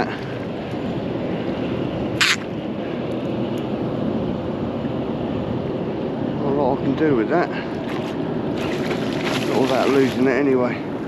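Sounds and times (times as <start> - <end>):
water around boat: 0.0 - 11.0
wind on microphone: 0.0 - 11.0
short sharp hiss: 2.2 - 2.4.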